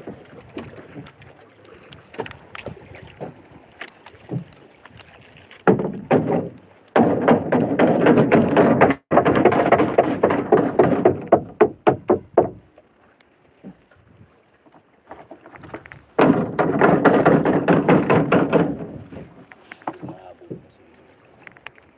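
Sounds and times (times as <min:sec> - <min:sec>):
knocking on wooden boat hull: 0:05.7 - 0:12.6, 0:16.2 - 0:19.0.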